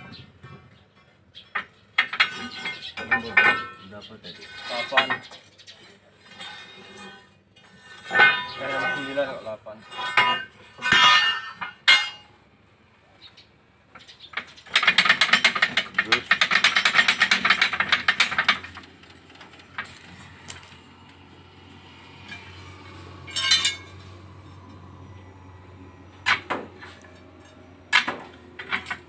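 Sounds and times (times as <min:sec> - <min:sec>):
metallic ratcheting clatter: 0:14.0 - 0:24.7, 0:26.2 - 0:29.0.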